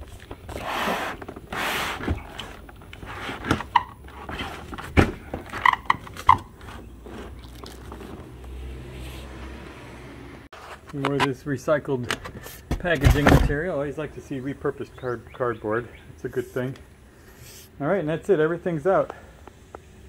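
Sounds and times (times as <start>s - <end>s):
cardboard rustling scrapes: 0.4s - 5.0s
cardboard squeaking: 0.4s - 8.2s.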